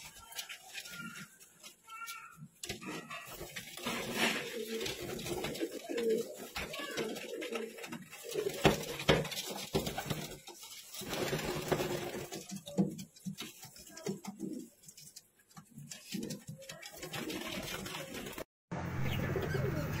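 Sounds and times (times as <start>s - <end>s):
pigeons cooing: 2.7s - 10.4s.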